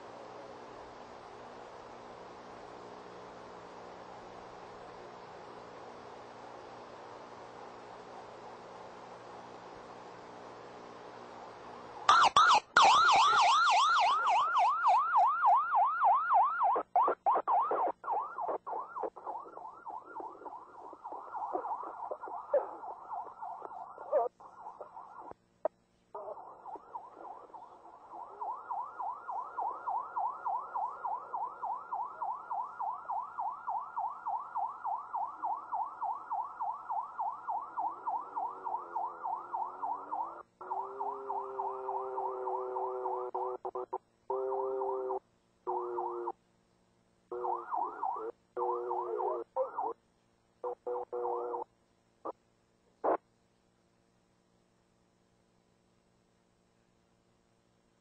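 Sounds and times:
police siren yelping: 12.1s - 25.4s, 26.2s - 46.3s, 47.3s - 50.0s, 50.6s - 51.6s
slower siren: 12.1s - 25.4s, 26.2s - 46.4s, 47.3s - 50.0s, 50.6s - 51.6s.

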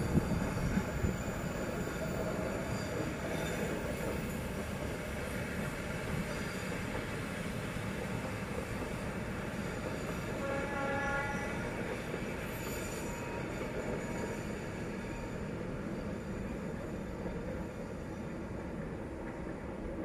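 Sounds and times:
freight train rumbling past: 0.0s - 20.0s
faint wheel squeal: 0.1s - 4.7s, 5.8s - 7.5s, 8.9s - 18.6s
train horn tone: 10.3s - 11.8s.

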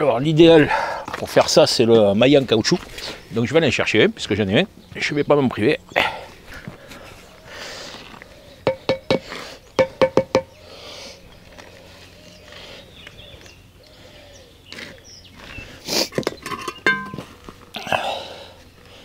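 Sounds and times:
rubber mallet knocking block: 8.7s - 9.2s, 9.8s - 10.5s.

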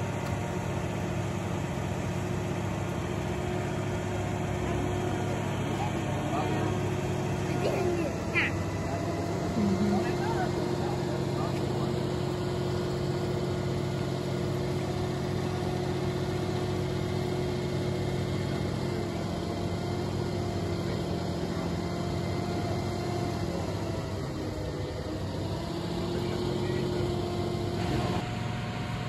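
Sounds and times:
crane truck engine humming: 0.0s - 29.0s.

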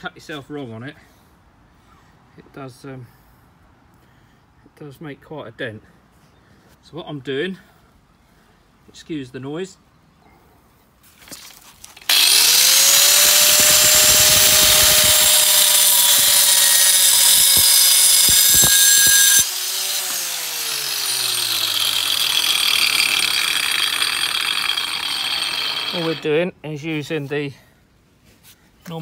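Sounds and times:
angle grinder motor: 12.1s - 26.2s
grinder grinding concrete: 12.1s - 26.3s.

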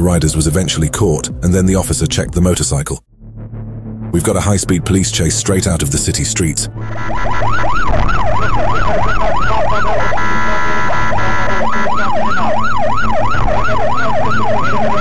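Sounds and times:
police siren yelp: 6.9s - 15.0s.

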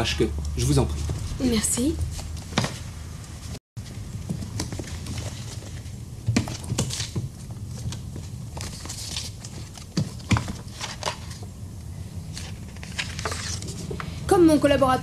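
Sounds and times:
case and boards being handled: 4.2s - 11.5s.

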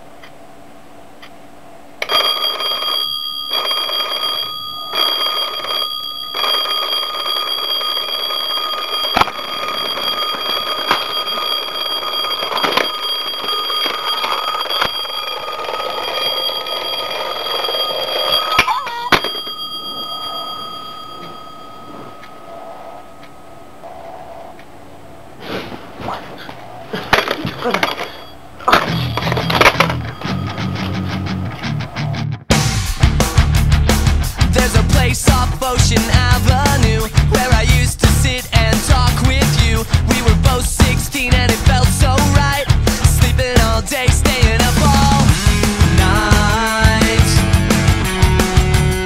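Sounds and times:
alarm clock ringing: 2.0s - 25.0s, 27.0s - 31.4s.

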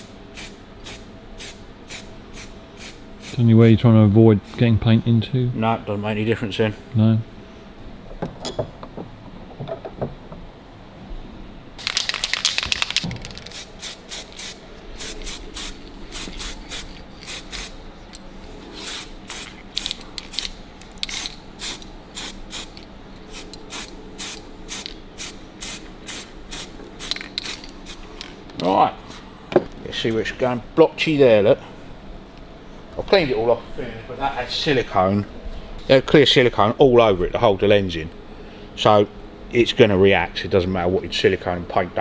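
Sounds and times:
spray paint can hissing: 11.8s - 17.7s, 18.8s - 22.8s, 23.4s - 28.0s.

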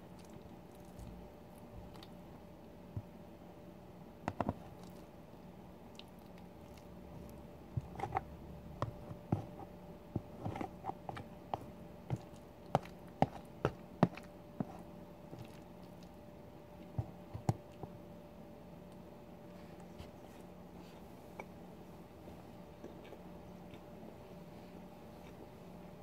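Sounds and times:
person chewing food: 0.0s - 2.2s, 4.3s - 5.1s, 5.9s - 16.2s, 22.7s - 24.0s.

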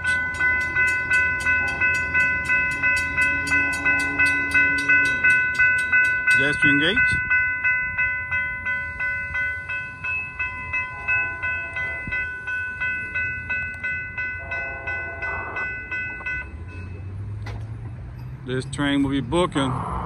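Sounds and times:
distant train horn: 0.0s - 6.2s, 10.7s - 12.5s, 13.6s - 17.1s
railroad crossing bells ringing: 0.0s - 20.0s.

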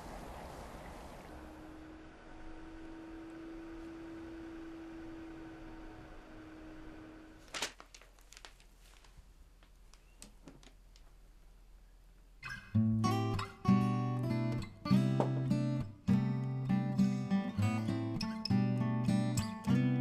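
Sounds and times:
steady hum: 0.0s - 7.5s
acoustic guitar strummed chords: 12.8s - 20.0s.

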